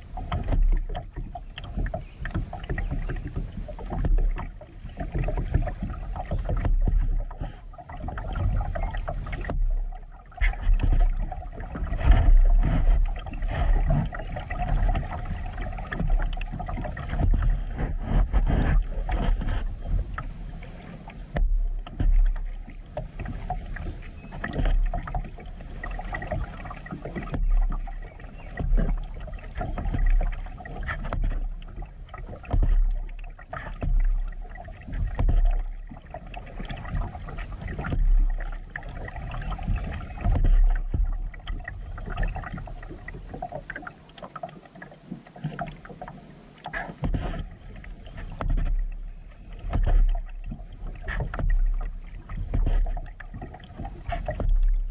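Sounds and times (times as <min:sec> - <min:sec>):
wind on microphone: 0:00.0 - 0:43.8
paddle splashing in water: 0:00.0 - 0:54.9.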